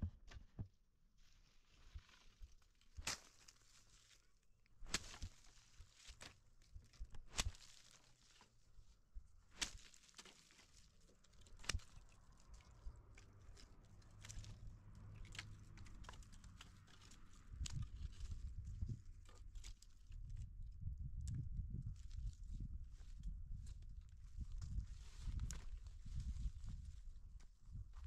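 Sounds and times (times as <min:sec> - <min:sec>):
cracks and crunches: 0:01.9 - 0:08.5, 0:09.5 - 0:18.4.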